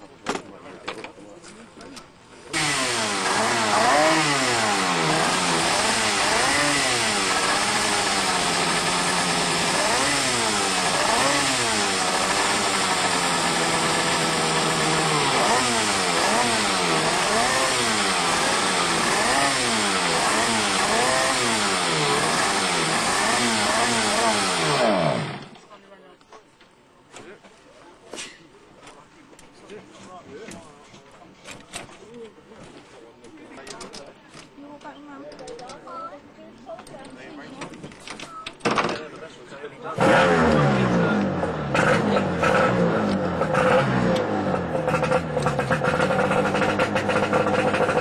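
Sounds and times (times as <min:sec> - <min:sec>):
outboard engine revving: 0:02.5 - 0:25.6, 0:40.0 - 0:48.0.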